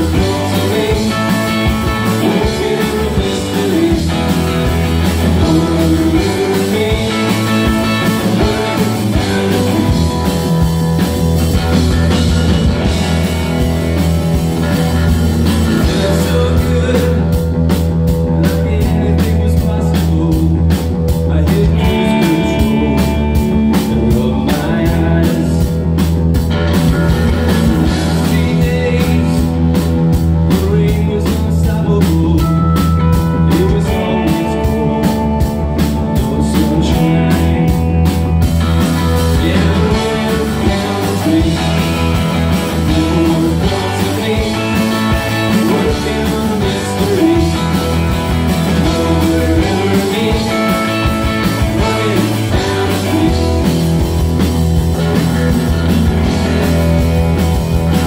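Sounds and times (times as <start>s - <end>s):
live rock band: 0.0s - 58.0s.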